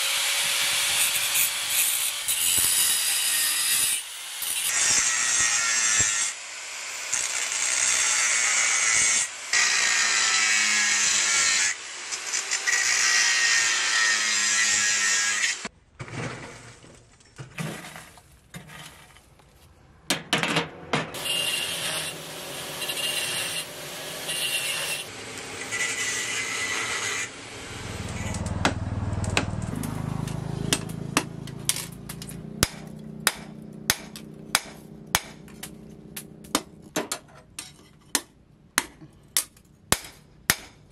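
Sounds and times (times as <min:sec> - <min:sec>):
angle grinder grinding steel: 0:00.0 - 0:15.7, 0:21.2 - 0:28.6.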